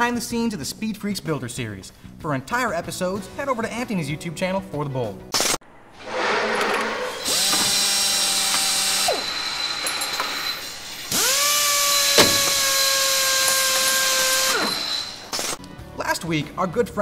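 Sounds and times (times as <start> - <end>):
power drill motor spinning: 6.8 - 15.6.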